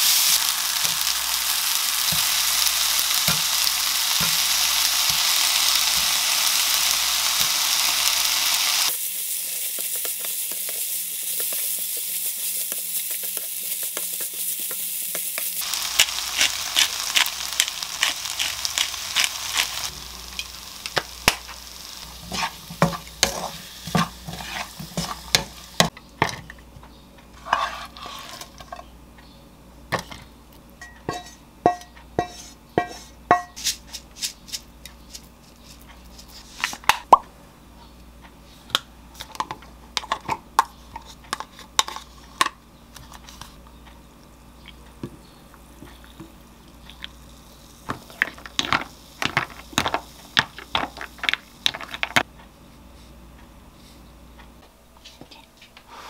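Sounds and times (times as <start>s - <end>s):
rice sizzling in a frying pan: 0.0s - 26.0s, 45.7s - 52.3s
spatula scraping and tapping pan: 9.7s - 15.6s, 22.2s - 26.4s, 27.4s - 28.9s, 30.8s - 37.0s.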